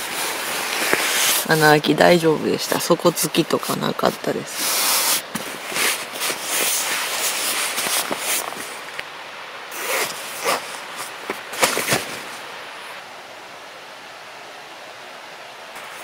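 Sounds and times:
nylon fabric rustling: 0.0s - 9.0s, 9.7s - 13.0s.

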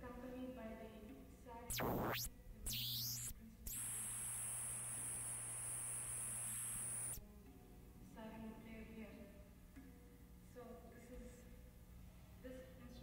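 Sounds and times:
high whine: 1.7s - 7.2s
low hum: 1.7s - 7.2s
tape hiss: 1.7s - 7.2s.

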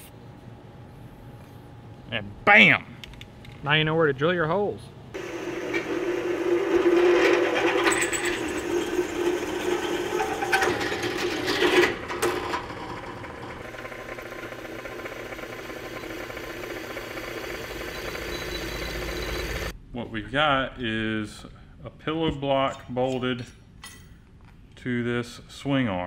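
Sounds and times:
drill press boring through steel: 5.2s - 19.7s.

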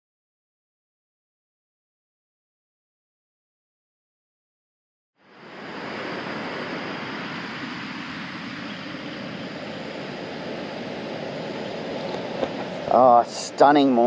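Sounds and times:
ocean surf breaking: 5.2s - 14.0s.

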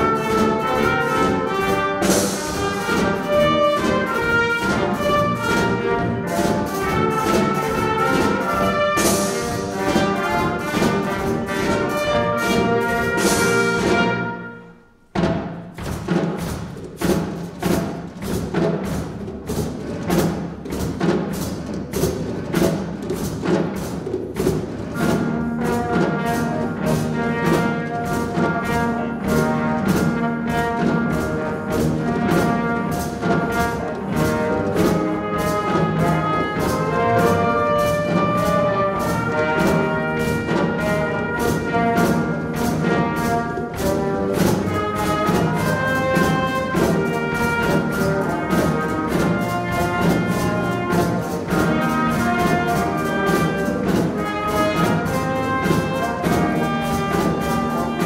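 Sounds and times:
trumpet playing tune: 0.0s - 15.0s, 25.0s - 58.0s
drum kit steady beat: 0.0s - 58.0s.

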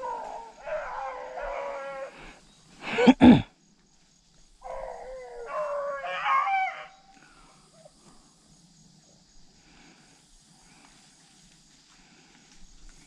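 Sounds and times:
dogs baying: 0.0s - 2.3s.

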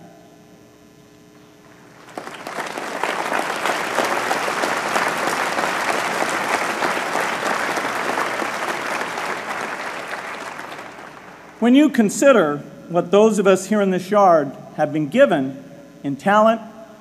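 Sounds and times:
large audience applauding: 1.9s - 11.6s.

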